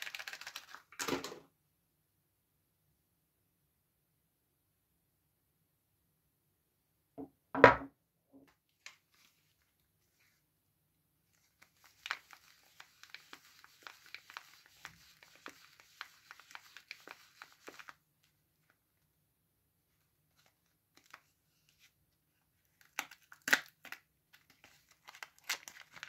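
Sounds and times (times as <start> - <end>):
paper wrapper crinkling: 0.0 - 1.3, 11.3 - 18.8, 20.3 - 21.9, 22.6 - 26.0.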